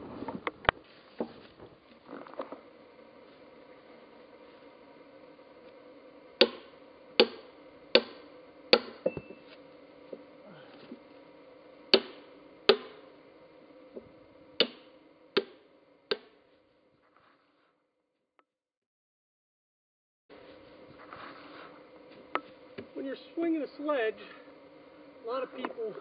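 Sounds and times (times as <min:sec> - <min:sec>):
sledgehammer striking steel wedge: 0:08.0 - 0:08.2.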